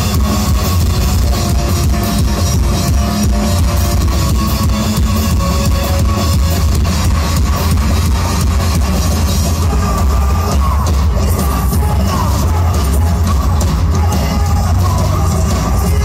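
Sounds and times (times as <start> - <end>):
drum kit: 0.0 - 16.0
electric guitars: 0.0 - 16.0.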